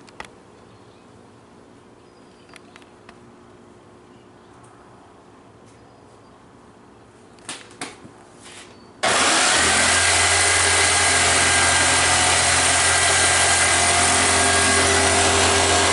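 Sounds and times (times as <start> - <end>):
power tool motor whining: 9.0 - 15.9.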